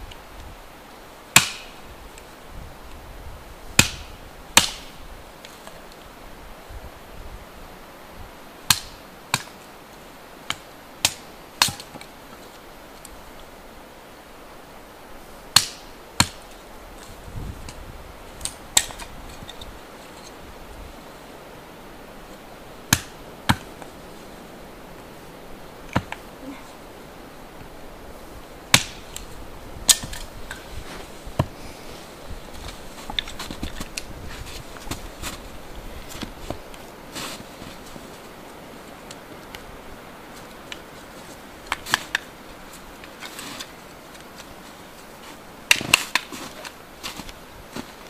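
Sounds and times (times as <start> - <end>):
hatchet chopping wood: 1.4 - 1.8, 3.8 - 4.9, 8.7 - 9.5, 10.5 - 12.0, 15.6 - 16.4, 22.9 - 23.7, 28.7 - 29.0, 29.9 - 30.2, 45.7 - 46.3.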